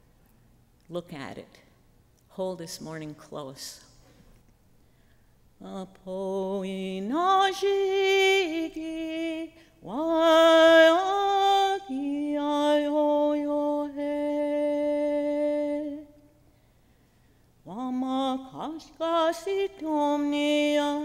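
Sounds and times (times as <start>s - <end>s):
woman singing unaccompanied: 5.6s - 16.3s, 17.6s - 21.0s.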